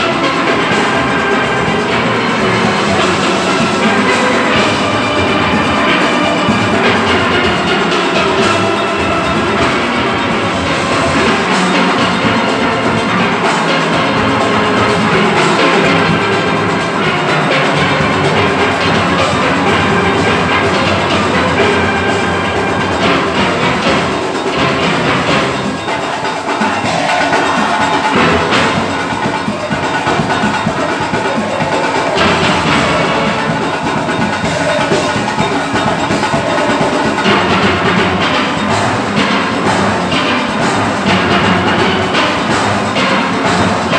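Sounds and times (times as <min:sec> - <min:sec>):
drums and percussion: 0:00.0 - 0:43.9
steelpans playing: 0:00.0 - 0:43.9.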